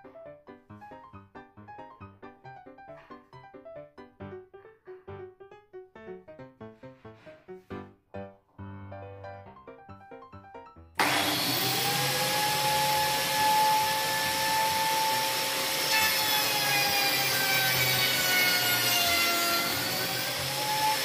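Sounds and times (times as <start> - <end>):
biscuit joiner cutting with whine: 11.0 - 21.0.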